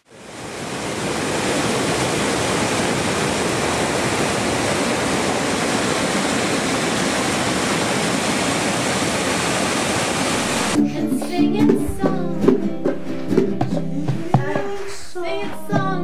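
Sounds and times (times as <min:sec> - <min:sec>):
creek rushing over boulders: 0:00.0 - 0:10.8.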